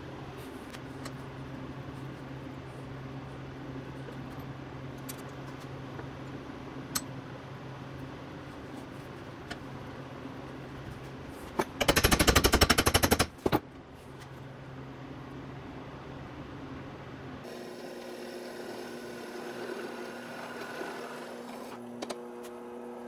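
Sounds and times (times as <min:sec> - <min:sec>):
steady low hum: 0:00.0 - 0:17.5.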